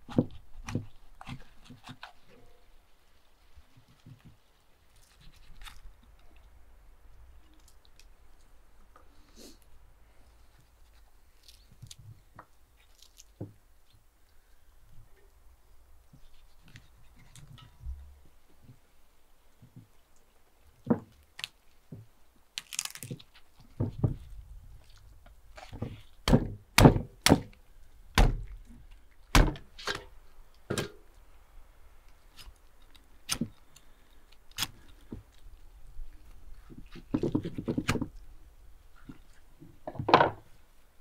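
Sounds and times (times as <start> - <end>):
fish heads thudding on wood: 26.3 - 27.5.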